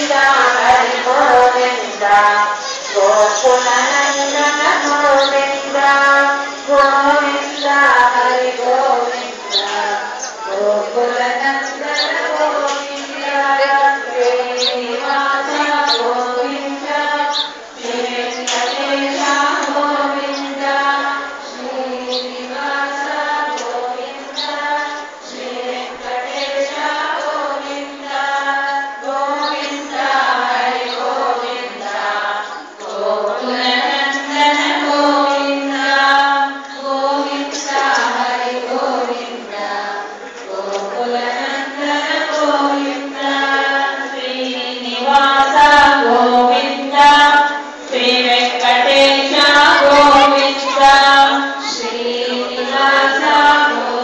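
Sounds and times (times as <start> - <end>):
women chanting in unison: 0.0 - 54.0.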